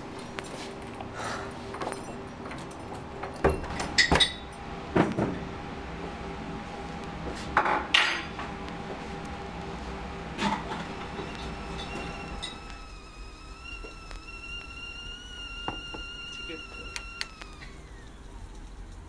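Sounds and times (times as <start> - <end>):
faint steady hum: 0.0 - 19.0
dishes and utensils clinking: 7.6 - 8.3.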